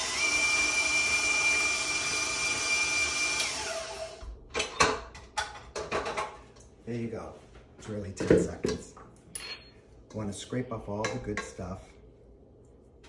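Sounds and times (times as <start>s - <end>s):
electric stand mixer whining: 0.0s - 4.3s.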